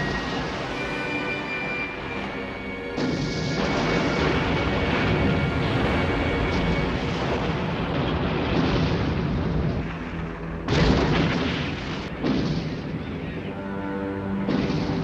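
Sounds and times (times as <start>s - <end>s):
explosion blasts: 3.0s - 13.5s, 14.4s - 15.0s
deep rumble: 3.0s - 13.7s.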